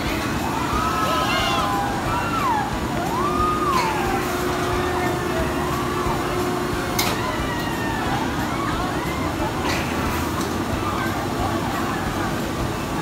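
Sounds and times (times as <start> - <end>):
ride machinery hum: 0.0 - 13.0
riders screaming: 0.4 - 6.2.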